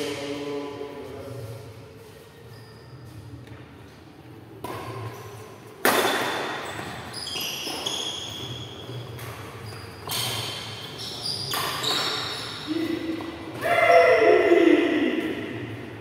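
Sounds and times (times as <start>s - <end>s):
rackets hitting shuttlecock: 4.6s - 12.2s.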